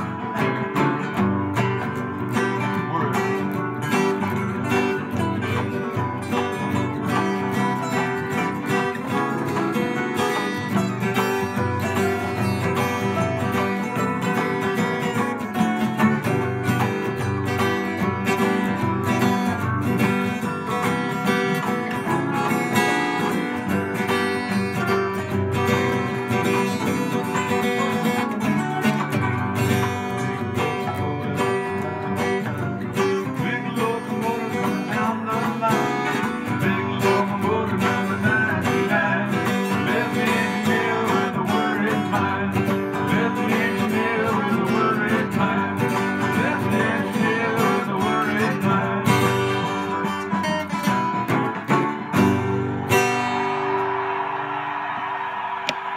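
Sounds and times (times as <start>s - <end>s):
acoustic guitar strumming chords: 0.0s - 55.9s.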